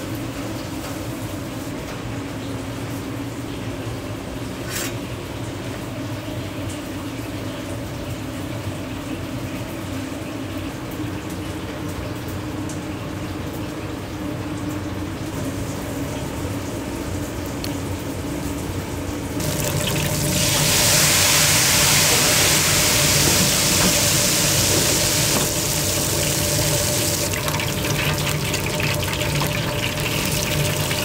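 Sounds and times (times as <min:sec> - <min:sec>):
constant kitchen hum: 0:00.0 - 0:31.0
hiss: 0:20.4 - 0:26.6.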